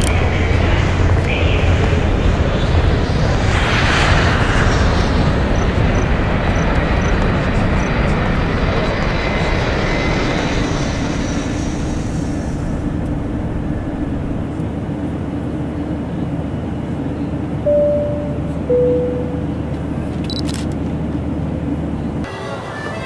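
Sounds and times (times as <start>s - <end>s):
low hum: 0.0s - 22.3s
airliner cabin roar: 0.0s - 23.0s
two-tone cabin chime: 17.6s - 19.7s.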